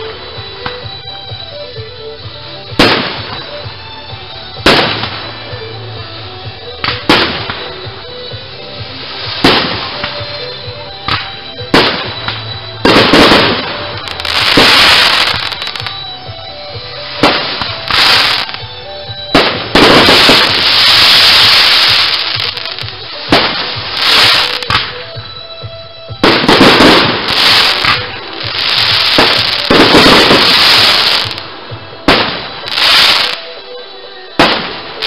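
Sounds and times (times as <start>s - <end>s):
fireworks crackling and hissing: 0.0s - 25.5s, 26.1s - 35.0s
fireworks bangs: 2.7s - 3.8s, 4.6s - 5.4s, 6.8s - 7.9s, 8.8s - 16.0s, 17.0s - 25.1s, 26.1s - 33.6s, 34.4s - 35.0s.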